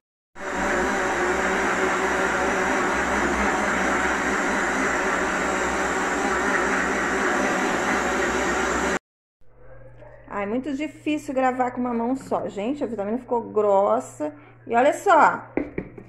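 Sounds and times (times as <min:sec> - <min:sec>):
electric blender running: 0:00.4 - 0:09.0.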